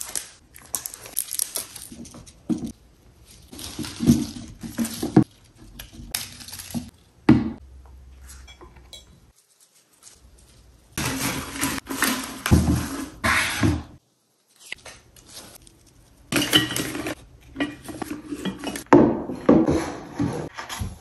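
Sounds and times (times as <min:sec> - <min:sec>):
stems rustling and scraping in vases: 0:00.0 - 0:07.2, 0:08.1 - 0:21.0.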